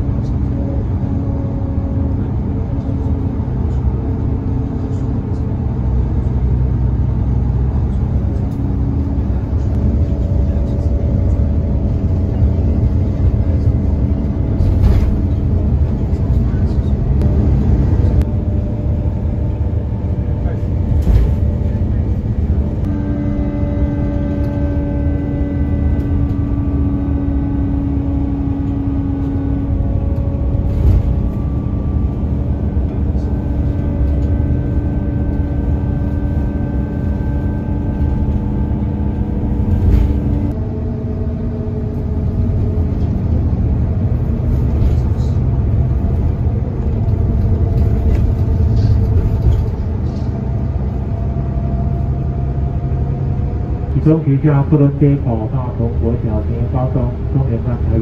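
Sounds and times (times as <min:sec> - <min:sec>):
engine and tyres rumbling: 0:00.0 - 0:58.0
steady droning tone: 0:00.0 - 0:58.0.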